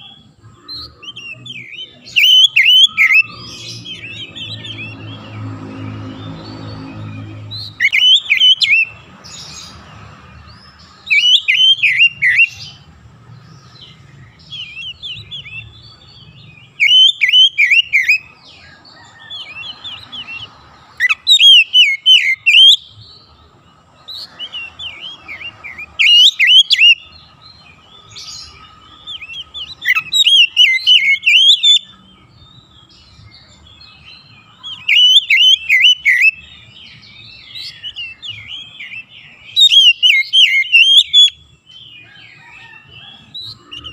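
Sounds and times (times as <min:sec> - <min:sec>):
bird singing whistled phrases: 0:00.8 - 0:05.0, 0:07.0 - 0:09.0, 0:11.1 - 0:12.8, 0:16.7 - 0:18.3, 0:19.4 - 0:23.0, 0:24.4 - 0:27.1, 0:29.1 - 0:32.0, 0:34.7 - 0:36.5, 0:37.3 - 0:41.4.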